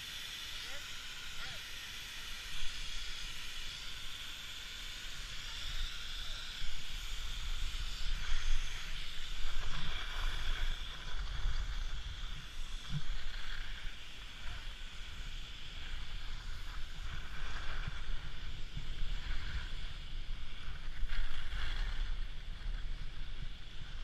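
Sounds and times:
wind on microphone: 0.0 - 24.0
skis scraping over snow: 16.2 - 24.0.

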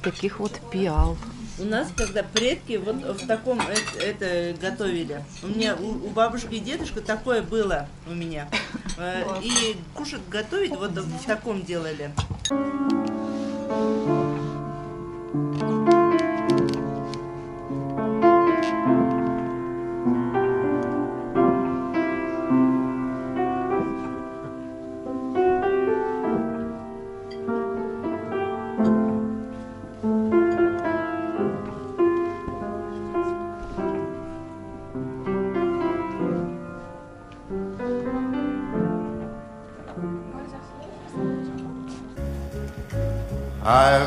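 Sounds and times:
upright piano playing: 12.5 - 44.0.

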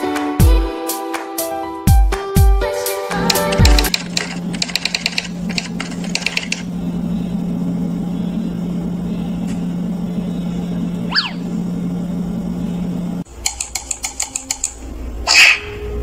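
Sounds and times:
steady low hum: 3.1 - 16.0
typewriter-like clicks: 3.3 - 6.7, 13.4 - 14.8.

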